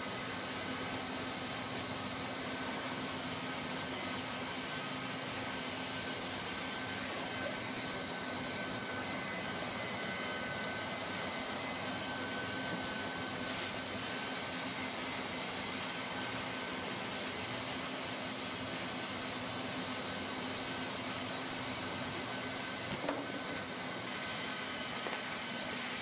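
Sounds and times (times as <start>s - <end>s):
hot-air welder blower hissing: 0.0s - 26.0s.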